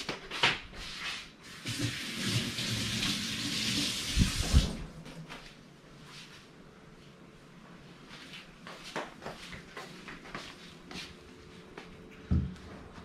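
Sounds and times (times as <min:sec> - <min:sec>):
kitchen tap running: 0:01.6 - 0:04.8.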